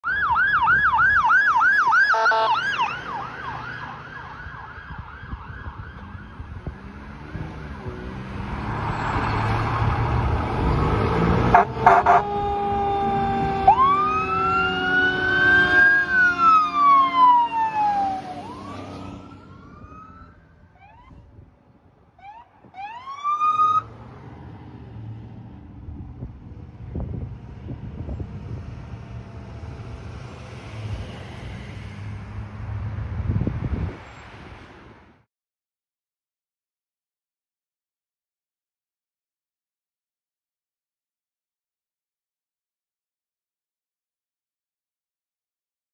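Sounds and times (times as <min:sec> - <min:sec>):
electronic siren yelping: 0:00.0 - 0:06.4, 0:11.5 - 0:21.3, 0:22.2 - 0:23.9
traffic passing: 0:00.2 - 0:35.3
air horn blasts: 0:02.1 - 0:02.7, 0:11.5 - 0:13.5.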